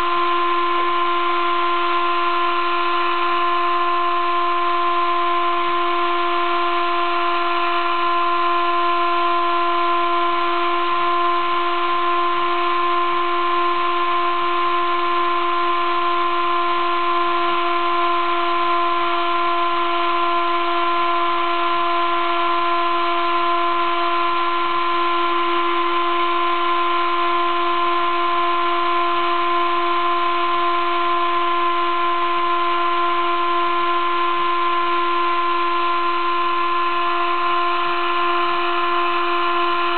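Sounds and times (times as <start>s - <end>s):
milling machine whine: 0.0s - 39.9s.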